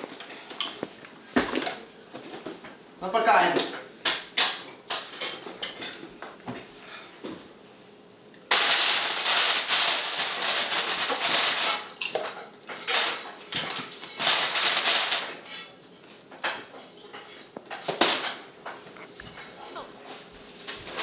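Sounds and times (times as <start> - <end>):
plastic chip bag crinkling: 8.5 - 11.9, 14.2 - 15.3.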